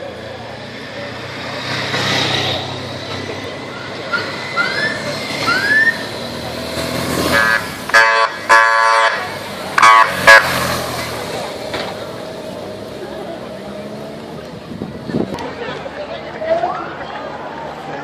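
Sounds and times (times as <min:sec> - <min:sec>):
motorcycle horn blasts: 0:07.3 - 0:10.5.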